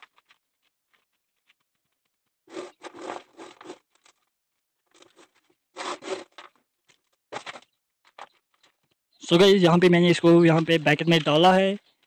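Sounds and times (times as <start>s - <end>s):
dry concrete mix scraping and crunching: 0.0s - 12.0s.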